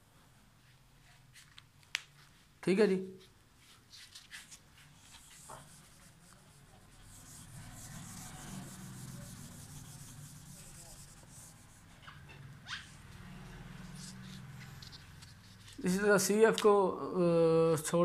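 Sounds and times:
eraser rubbing on whiteboard: 0:04.0 - 0:15.8.

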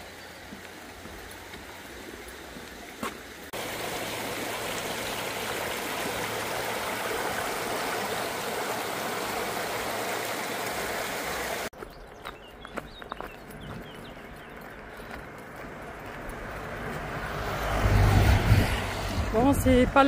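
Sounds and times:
stream rushing over stones: 0:00.0 - 0:11.7.

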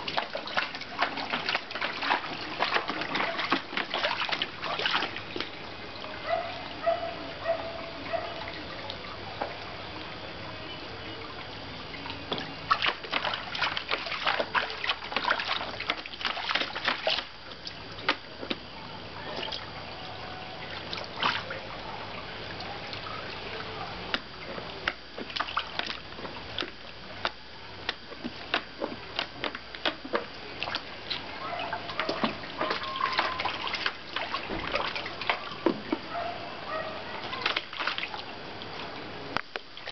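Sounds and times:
dog splashing in water: 0:00.0 - 0:05.6, 0:12.4 - 0:18.2, 0:20.6 - 0:22.0, 0:30.6 - 0:38.3.

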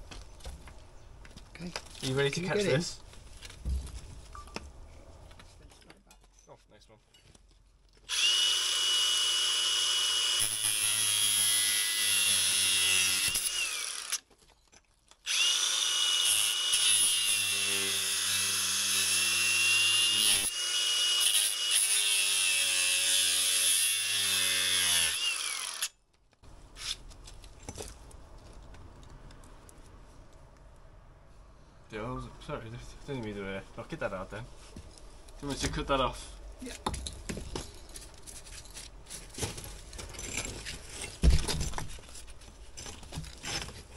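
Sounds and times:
angle grinder cutting: 0:08.1 - 0:14.2, 0:15.3 - 0:25.9.

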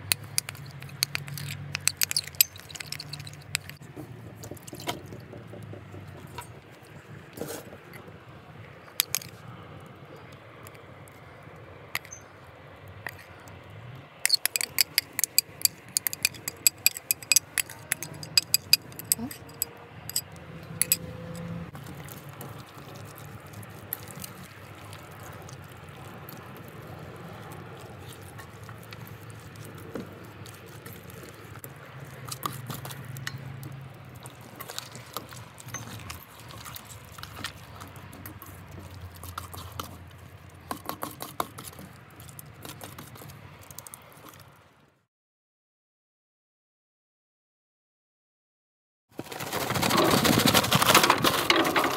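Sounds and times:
hands squelching marinade into chicken: 0:00.0 - 0:07.7, 0:14.3 - 0:19.6, 0:21.8 - 0:44.6
clicks and knocks on metal bowl: 0:00.1 - 0:03.8, 0:14.3 - 0:21.1.

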